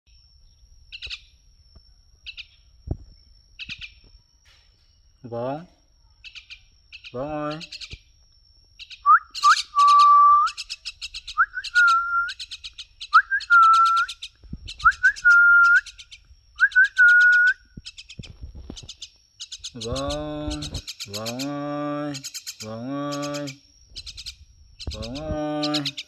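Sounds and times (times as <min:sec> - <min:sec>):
myna bird chattering: 0:03.6 - 0:04.0, 0:06.2 - 0:08.1, 0:08.8 - 0:26.0.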